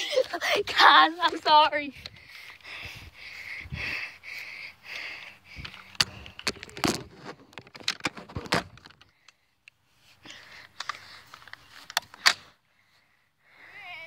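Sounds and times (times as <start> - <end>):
phone handling noise: 5.7 - 9.1.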